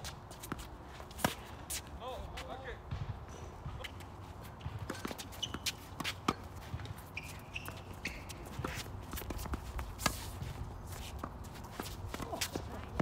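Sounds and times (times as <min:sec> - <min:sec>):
shuffling footsteps: 0:00.0 - 0:13.0
ball bouncing: 0:02.9 - 0:10.2
racket hitting tennis ball: 0:02.9 - 0:13.0
shoe squeaks: 0:03.8 - 0:10.4.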